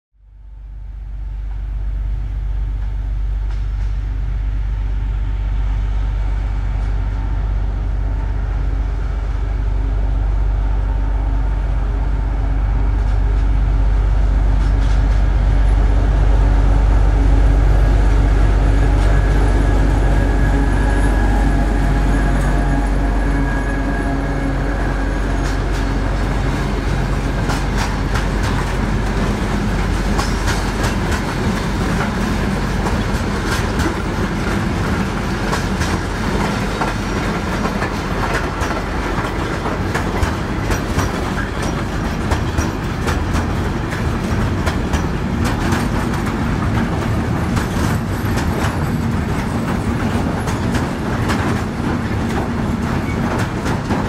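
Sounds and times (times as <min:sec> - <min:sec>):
diesel locomotive engine: 0:00.2 - 0:54.0
wagon wheels clicking over rail joints: 0:27.3 - 0:54.0.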